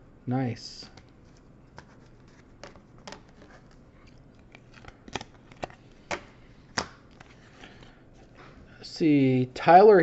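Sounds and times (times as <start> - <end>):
trading cards clicking and crinkling: 0.9 - 8.4.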